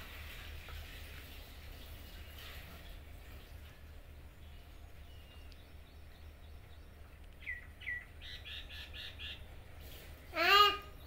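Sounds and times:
bird chirping: 0:03.2 - 0:09.8.

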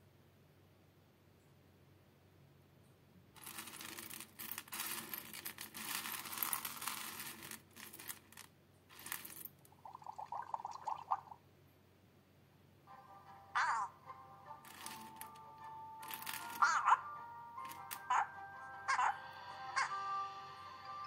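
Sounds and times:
coffee beans rattling in glass dish: 0:03.4 - 0:11.3, 0:14.6 - 0:16.9, 0:17.6 - 0:18.2.

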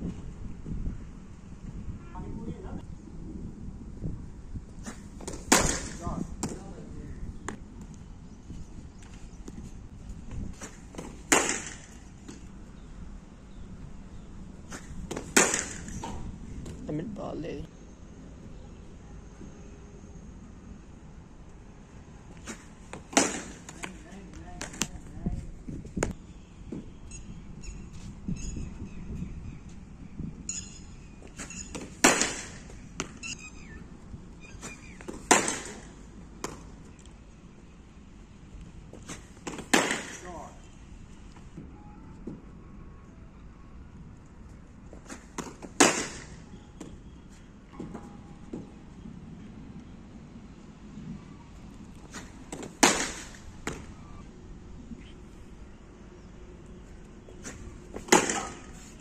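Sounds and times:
ball thrower sharp cracks: 0:04.8 - 0:06.6, 0:10.6 - 0:12.4, 0:14.7 - 0:16.8, 0:22.4 - 0:24.0, 0:31.7 - 0:33.2, 0:34.6 - 0:36.7, 0:39.0 - 0:40.5, 0:45.0 - 0:47.0, 0:52.1 - 0:54.0, 0:57.4 - 0:58.9
bat hitting ball: 0:04.9 - 0:06.6, 0:10.9 - 0:12.4, 0:15.1 - 0:16.3, 0:22.5 - 0:24.0, 0:31.7 - 0:33.2, 0:34.9 - 0:36.6, 0:39.4 - 0:40.3, 0:45.3 - 0:46.4, 0:52.2 - 0:54.0, 0:57.9 - 0:58.9.

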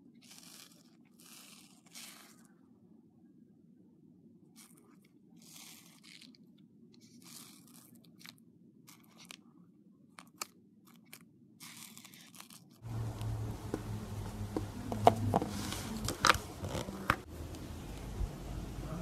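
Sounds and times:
faint steady hum: 0:00.0 - 0:19.0
slime crackling and popping: 0:07.0 - 0:09.4.

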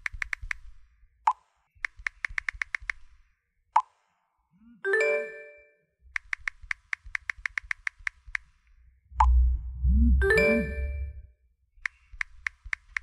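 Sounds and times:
phone keyboard clicks: 0:00.0 - 0:00.7, 0:01.8 - 0:03.1, 0:06.1 - 0:08.6, 0:11.8 - 0:13.0
notification chime: 0:09.9 - 0:11.2.

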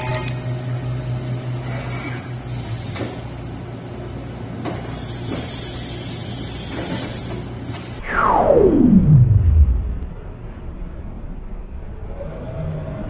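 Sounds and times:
spindle whine falling in pitch: 0:08.0 - 0:10.6.

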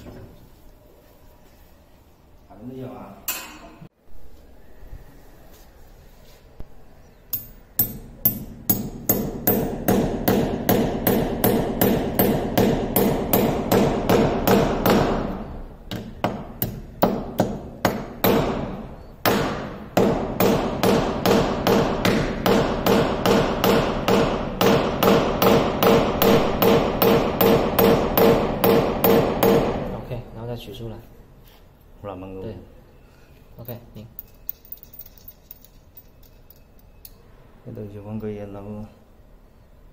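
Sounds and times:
hammer tapping a screw: 0:07.3 - 0:15.0.

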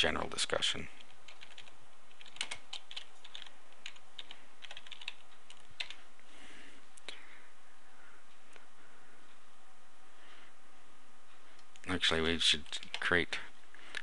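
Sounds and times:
computer keyboard typing: 0:01.0 - 0:06.0, 0:12.5 - 0:13.1.

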